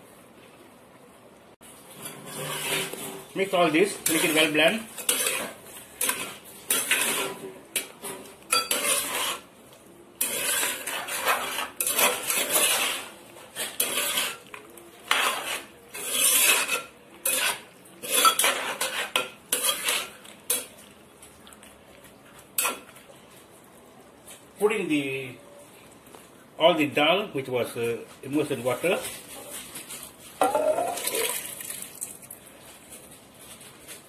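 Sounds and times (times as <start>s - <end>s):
spoon scraping a clay pot: 1.8s - 3.3s, 3.9s - 9.5s, 10.1s - 20.8s.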